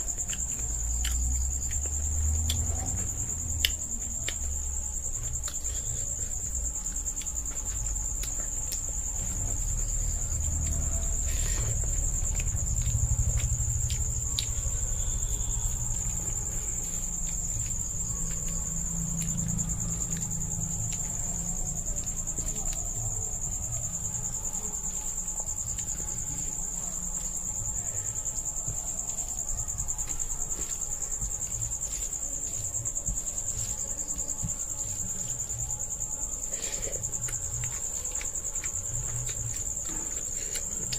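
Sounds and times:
chewing and mouth clicks: 0.1s - 22.9s, 36.5s - 40.9s.

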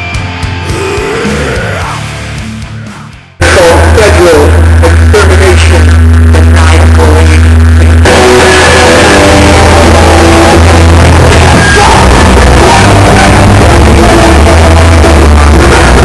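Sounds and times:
punk band playing loud: 0.0s - 5.3s, 6.4s - 16.0s
heavy bass notes: 0.0s - 16.0s
vocalist shouting: 0.7s - 2.0s, 8.2s - 15.0s.

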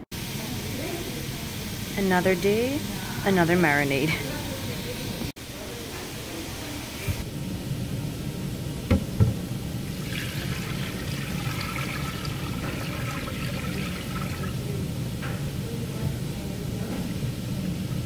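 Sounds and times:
liquid pouring: 9.8s - 14.8s.

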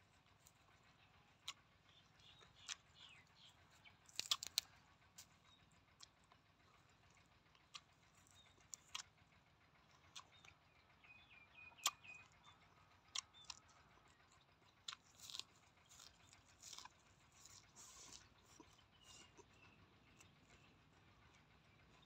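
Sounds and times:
crunching bite of leafy herbs: 0.2s - 9.2s, 11.8s - 22.0s
herb stems snapping: 4.2s - 4.7s.

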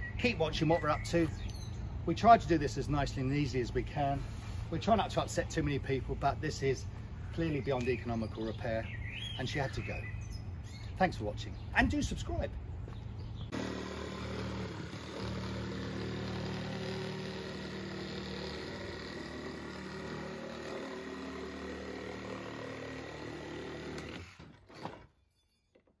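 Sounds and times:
power saw cutting wood: 13.5s - 25.1s.

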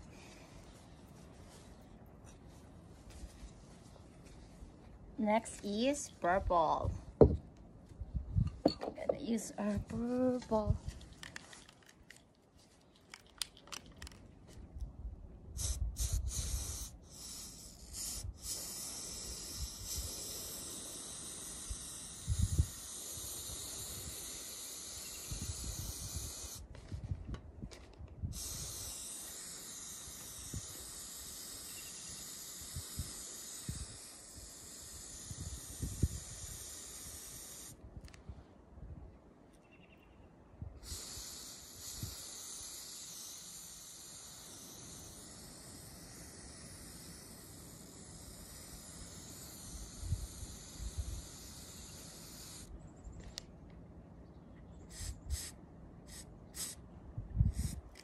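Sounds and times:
aerosol spray can hissing: 15.6s - 26.7s, 28.3s - 37.8s, 40.8s - 52.7s, 54.9s - 56.8s, 57.5s - 58.0s.

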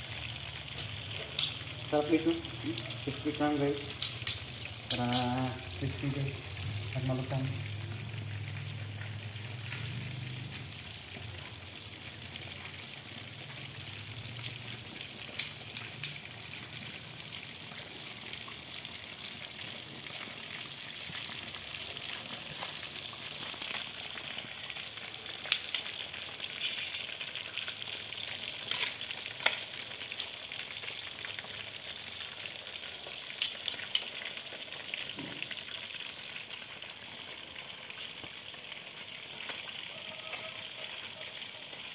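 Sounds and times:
oil sizzling: 0.0s - 41.9s
utensils clinking on metal pot: 0.4s - 1.7s, 3.9s - 5.5s, 15.4s - 16.3s, 25.5s - 26.0s, 28.6s - 29.6s, 33.4s - 34.3s.

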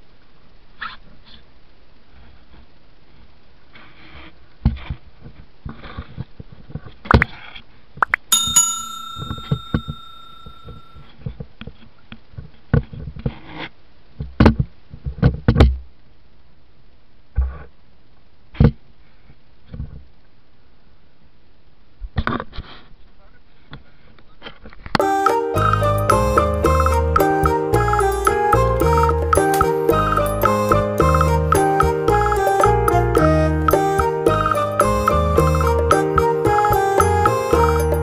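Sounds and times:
sharp metallic clang: 8.3s - 11.0s.

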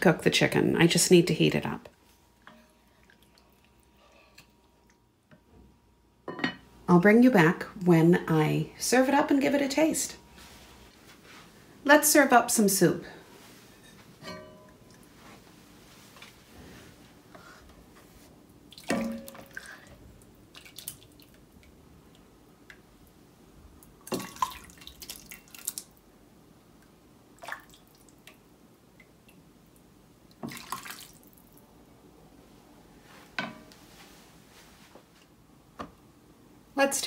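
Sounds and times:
soup pouring and splashing: 18.7s - 21.7s, 24.0s - 26.0s, 27.4s - 28.4s, 30.3s - 31.6s.

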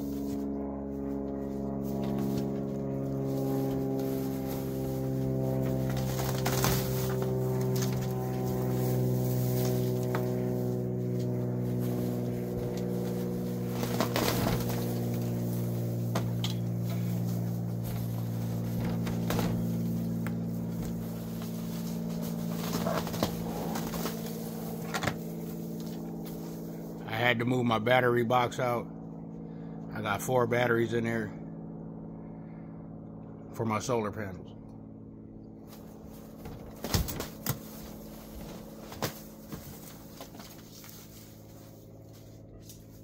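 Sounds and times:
low motor hum: 0.0s - 43.0s
dry grass pulled by hand: 1.0s - 27.3s, 35.6s - 43.0s.

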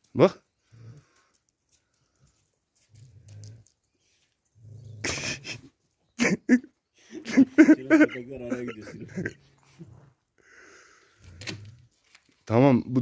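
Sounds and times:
dogs growling: 2.8s - 3.8s, 4.4s - 5.8s.

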